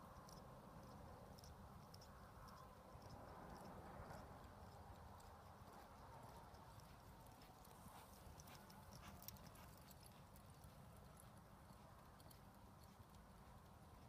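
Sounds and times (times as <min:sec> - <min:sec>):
horse hoofbeats on sand: 0:03.0 - 0:14.0.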